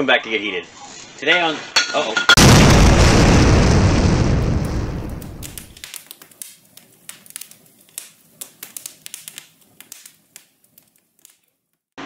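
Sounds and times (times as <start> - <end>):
blast: 2.4 - 6.0
sparks crackling: 2.4 - 11.9.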